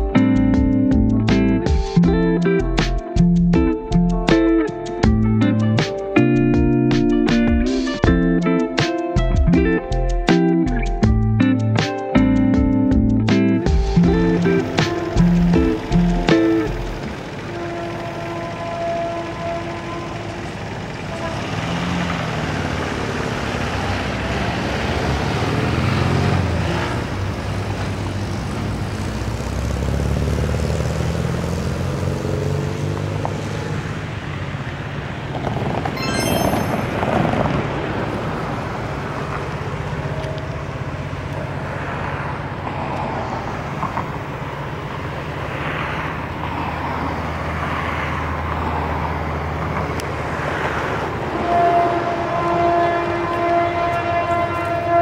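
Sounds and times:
road traffic noise: 0:00.0 - 0:55.0
distant locomotive engine drone: 0:13.6 - 0:30.3, 0:36.9 - 0:55.0.

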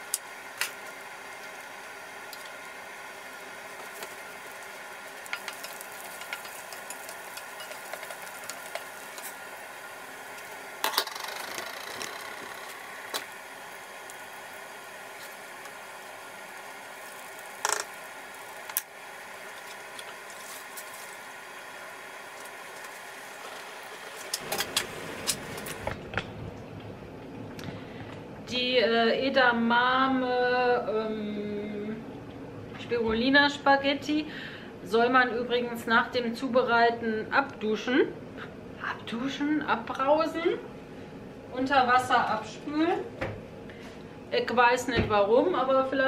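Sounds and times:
garlic sizzling in oil: 0:00.0 - 0:11.5, 0:12.6 - 0:25.9.

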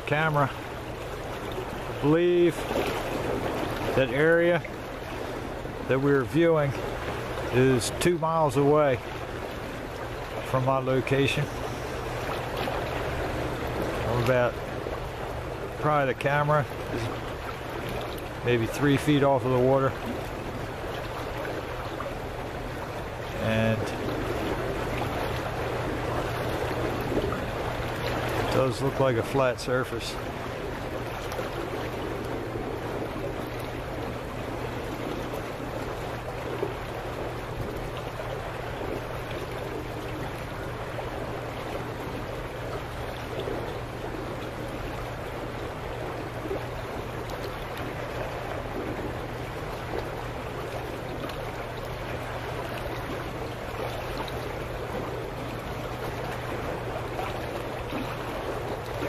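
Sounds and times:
water churning and burbling: 0:00.0 - 0:59.0
low hum: 0:09.6 - 0:28.8.

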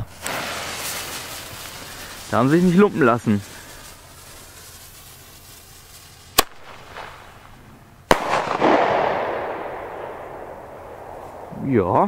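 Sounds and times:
firework shell bursting with echo: 0:00.0 - 0:11.6
shell launch bang: 0:08.1 - 0:11.6.

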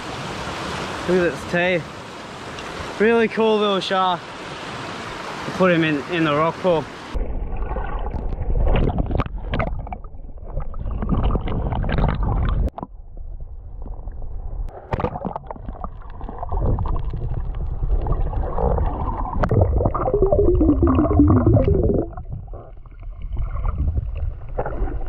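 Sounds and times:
muffled underwater churning: 0:07.1 - 0:25.0
water splashing at surface: 0:07.2 - 0:12.9
dull knocks underwater: 0:07.6 - 0:25.0.

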